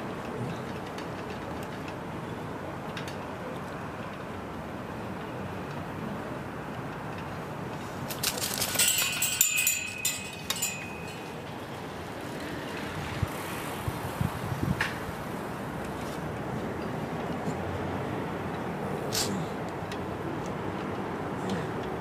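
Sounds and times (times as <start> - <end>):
street background: 0.0 - 22.0
metallic clinking: 8.1 - 11.5.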